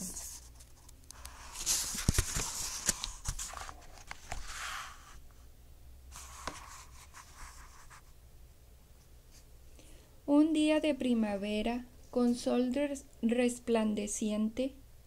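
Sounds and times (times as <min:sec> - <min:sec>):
book pages rustling: 0:00.0 - 0:05.2, 0:06.2 - 0:08.1.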